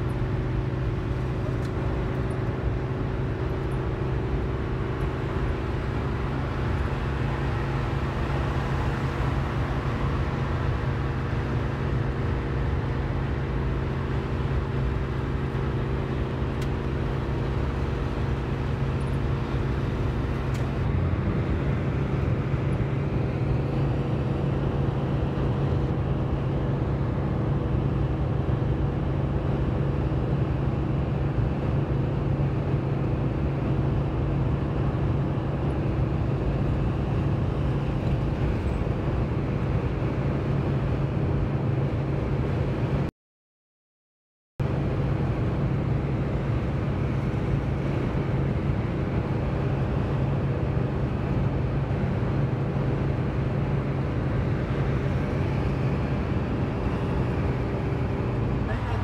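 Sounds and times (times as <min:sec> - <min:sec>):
car engine hum: 0:00.0 - 0:43.1, 0:44.6 - 0:59.0
tyre and road noise: 0:00.0 - 0:43.1, 0:44.6 - 0:59.0.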